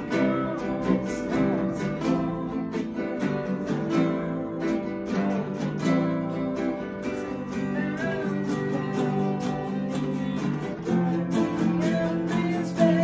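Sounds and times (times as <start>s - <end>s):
acoustic guitars strummed: 0.0s - 13.0s.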